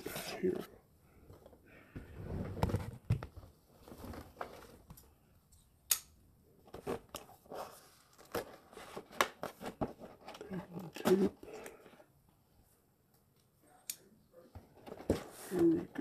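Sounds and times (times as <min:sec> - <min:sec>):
hands rustling cardboard: 0:00.0 - 0:05.1, 0:06.6 - 0:12.1, 0:14.5 - 0:16.0.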